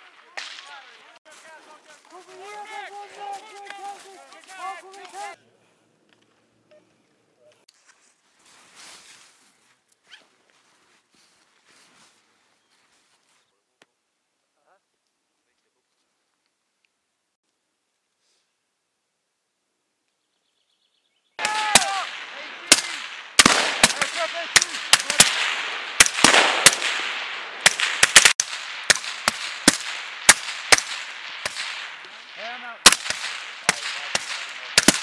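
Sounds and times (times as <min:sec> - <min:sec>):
suppressed rifle shots: 0:21.4 - 0:35.0.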